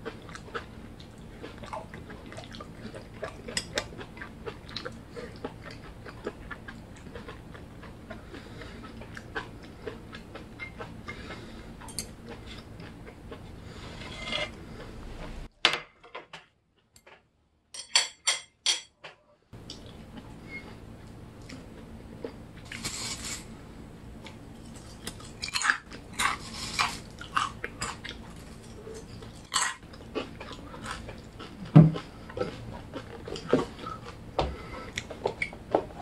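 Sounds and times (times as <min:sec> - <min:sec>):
person chewing: 0:00.0 - 0:15.5, 0:24.2 - 0:36.0.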